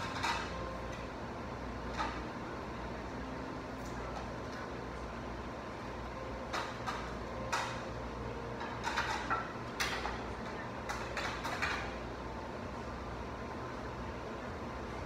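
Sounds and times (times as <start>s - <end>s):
steady low hum: 0.0s - 15.0s
utensils clinking against bowls: 8.6s - 11.9s.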